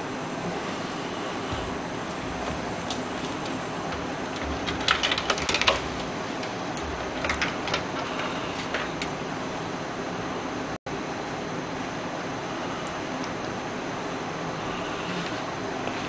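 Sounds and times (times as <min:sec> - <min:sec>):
clicks and rattles of computer parts: 0:02.1 - 0:09.2.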